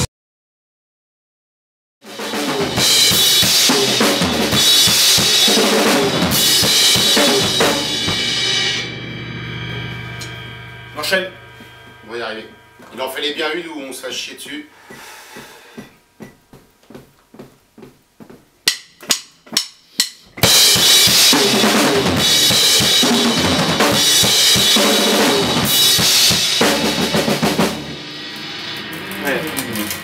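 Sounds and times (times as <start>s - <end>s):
rock band playing: 2.0s - 13.6s, 20.4s - 30.0s.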